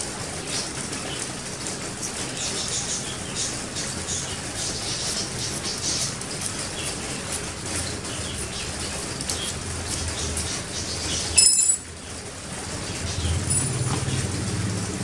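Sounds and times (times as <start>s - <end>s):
vehicle engine: 0.0s - 15.0s
high ringing clink: 11.4s - 11.9s.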